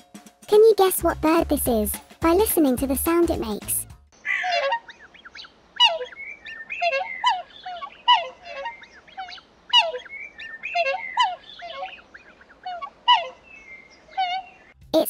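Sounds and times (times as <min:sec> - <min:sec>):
swan calls: 0:04.2 - 0:14.6.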